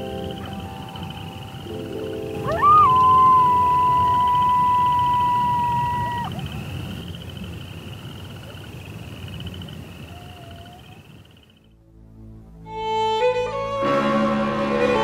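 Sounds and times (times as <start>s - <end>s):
long animal howl: 2.4s - 6.5s, 10.0s - 11.0s.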